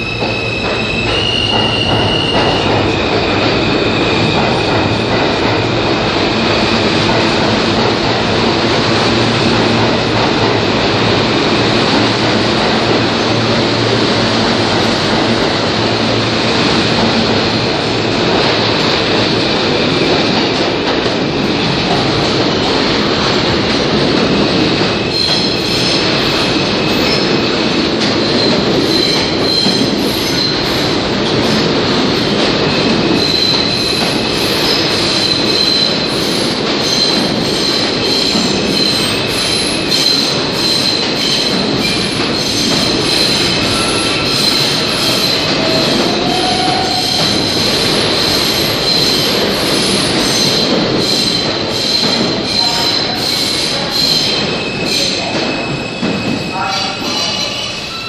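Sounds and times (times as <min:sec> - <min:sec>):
subway train rumbling: 0:00.0 - 0:58.0
high-pitched wheel squeal: 0:34.7 - 0:47.3.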